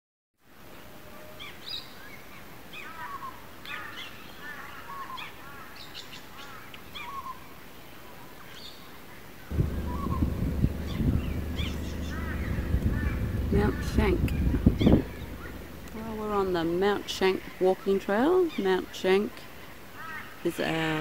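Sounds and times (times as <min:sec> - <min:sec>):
birds chirping: 0:09.5 - 0:16.5
low hum with steady tones: 0:09.5 - 0:17.0.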